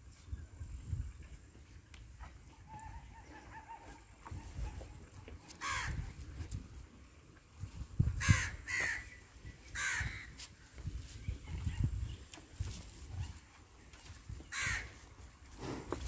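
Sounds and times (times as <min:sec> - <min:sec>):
crow cawing: 0:05.6 - 0:06.0, 0:08.2 - 0:09.1, 0:09.7 - 0:10.3, 0:14.5 - 0:14.9.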